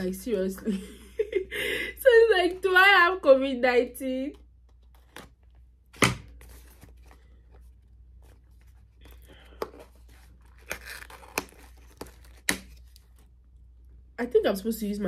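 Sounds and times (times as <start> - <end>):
packaging rustling and tearing: 6.3 - 13.3.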